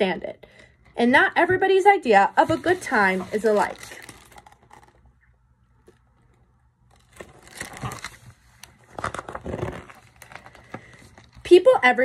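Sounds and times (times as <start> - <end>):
paper pages rustling: 2.3 - 5.1, 6.9 - 11.4.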